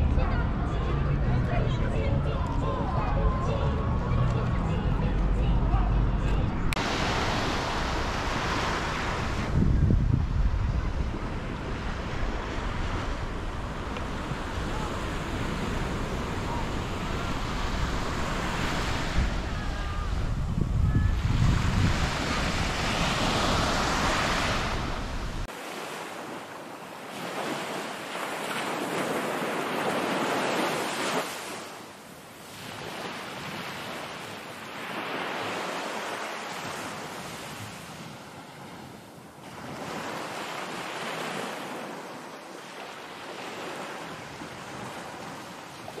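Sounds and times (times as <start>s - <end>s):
wind rumbling on microphone: 0.0s - 25.5s
waves washing on sandy beach: 6.7s - 46.0s.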